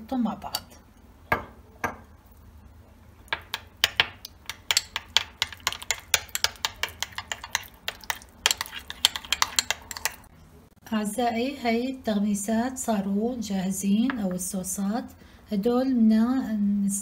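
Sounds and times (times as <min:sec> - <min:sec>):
metal spoon clinking in bowl: 0:03.4 - 0:10.3.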